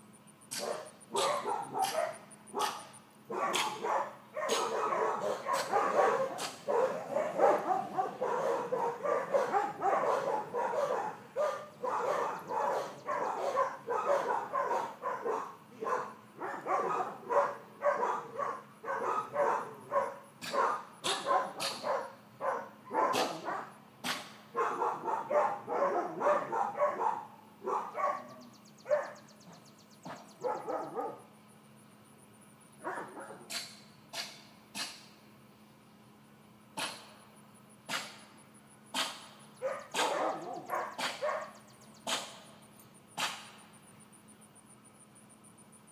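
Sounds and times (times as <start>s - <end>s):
puppy barking and yipping: 0.5s - 29.3s, 30.0s - 31.3s, 32.8s - 35.0s, 38.9s - 42.5s.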